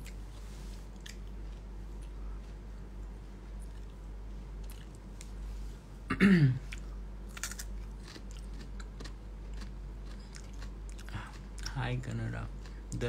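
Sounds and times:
carrot crunching and chewing: 6.7s - 13.0s
low voice hum: 11.0s - 13.0s.

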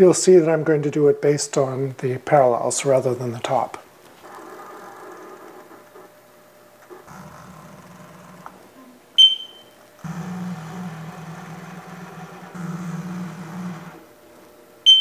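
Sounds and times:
milling machine motor hum: 4.2s - 8.8s, 9.9s - 14.9s
short high beep: 9.2s - 9.7s.

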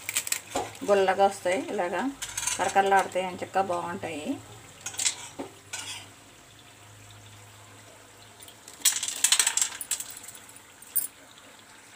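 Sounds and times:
fried snacks rustling in steel bowl: 0.0s - 3.1s, 8.8s - 10.2s.

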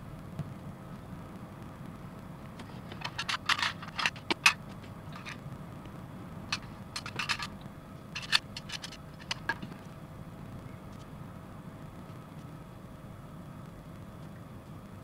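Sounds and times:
hard plastic parts clicking: 2.6s - 5.4s, 6.5s - 7.5s, 8.2s - 9.7s.

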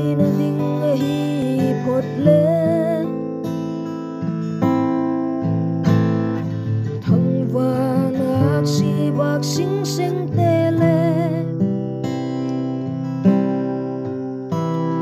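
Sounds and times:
person singing: 0.0s - 3.2s, 7.0s - 11.6s
acoustic guitar: 0.0s - 15.0s.

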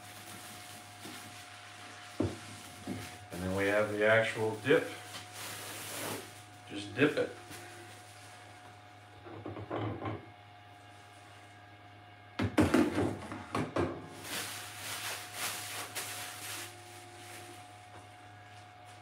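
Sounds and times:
rustling: 14.2s - 17.8s.

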